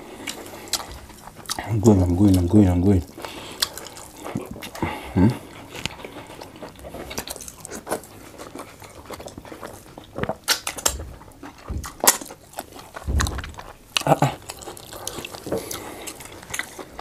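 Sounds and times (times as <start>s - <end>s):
lip smacks and chewing: 0.1s - 17.0s
fingers squishing soft food: 5.5s - 17.0s.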